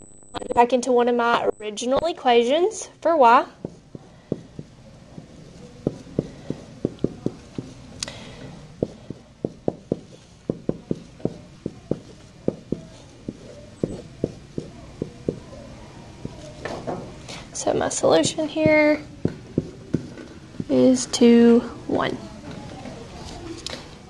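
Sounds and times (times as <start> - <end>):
marker tapping on whiteboard: 3.6 - 8.2, 8.8 - 15.5, 18.2 - 20.8.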